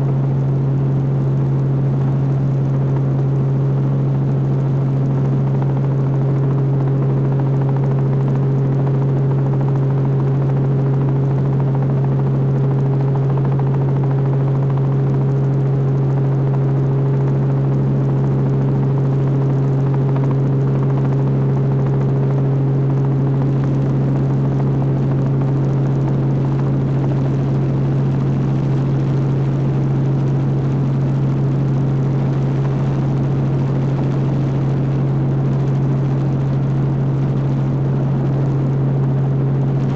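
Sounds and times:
helicopter engine drone: 0:00.0 - 0:39.9.

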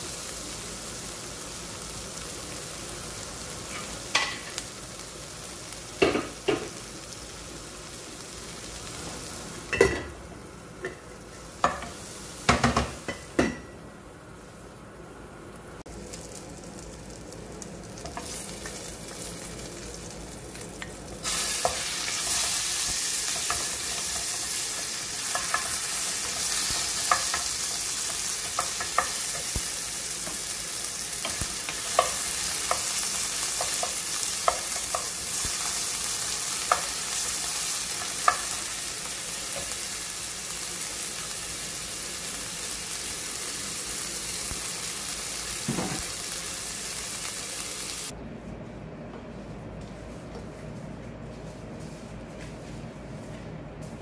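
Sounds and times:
chicken sizzling in hot oil: 0:15.8 - 0:48.2.

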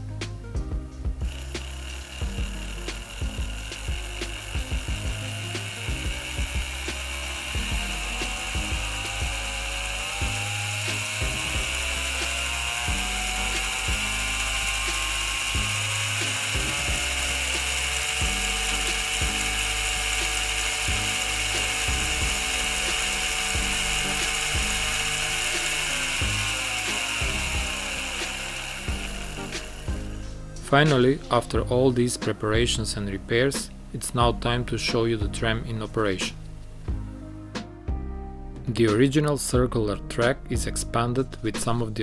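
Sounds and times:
small electric motor whine: 0:01.1 - 0:31.0
gears clicking: 0:01.3 - 0:29.9.

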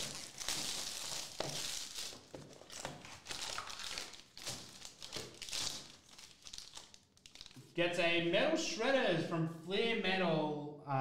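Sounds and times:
plastic wrapper crinkling and tearing: 0:00.0 - 0:07.7.

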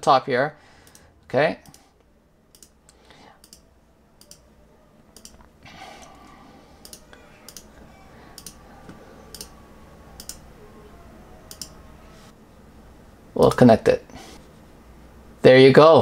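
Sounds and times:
faint low hum: 0:00.0 - 0:16.0
computer mouse clicking: 0:00.8 - 0:01.9, 0:02.5 - 0:03.6, 0:04.2 - 0:04.4, 0:05.2 - 0:06.2, 0:06.8 - 0:07.7, 0:08.4 - 0:08.6, 0:09.3 - 0:09.6, 0:10.2 - 0:10.4, 0:11.5 - 0:11.8.

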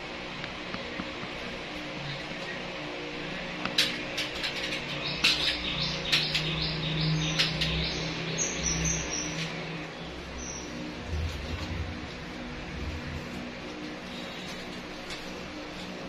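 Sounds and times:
low hum: 0:06.8 - 0:16.0.

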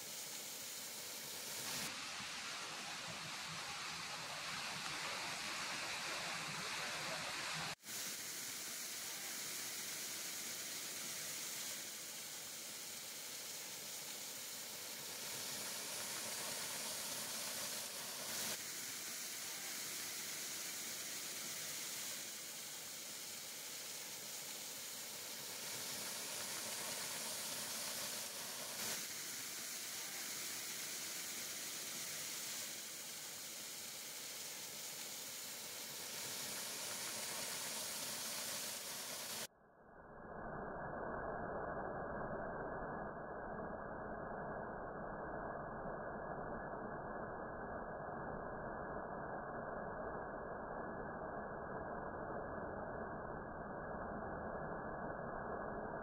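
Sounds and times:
waterfall splashing into pool: 0:01.4 - 0:07.8, 0:15.0 - 0:23.2, 0:23.8 - 0:39.5.

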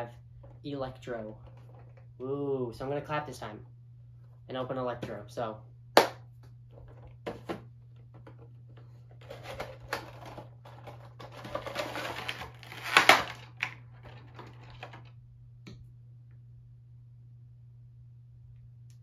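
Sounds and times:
low steady hum: 0:00.0 - 0:19.0
cardboard and plastic rustling: 0:06.7 - 0:15.1
plastic crackle: 0:09.2 - 0:15.1.

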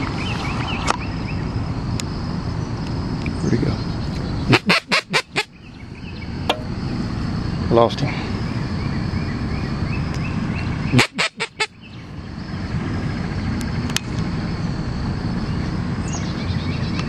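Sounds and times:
duck call quacks: 0:04.5 - 0:05.5, 0:10.9 - 0:11.7.

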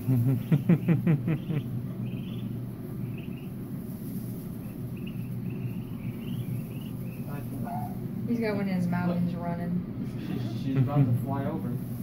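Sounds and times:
ducklings peeping: 0:00.0 - 0:08.2
steady low hum: 0:00.0 - 0:12.0.

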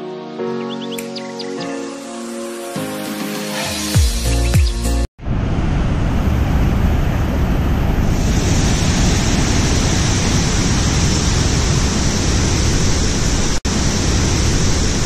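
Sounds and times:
waterfall roar: 0:05.2 - 0:15.0.

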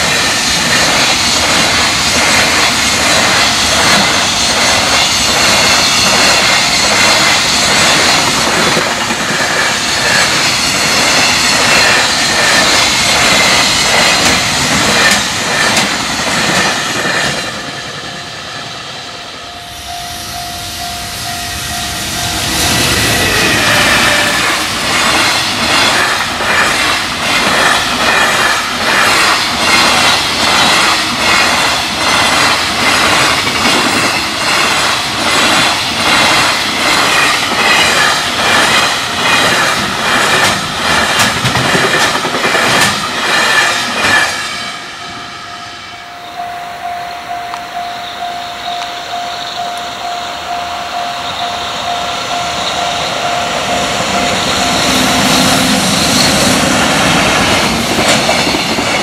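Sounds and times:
train wheels clattering over rail joints: 0:00.0 - 0:17.9, 0:22.7 - 0:44.5, 0:54.1 - 0:59.0.

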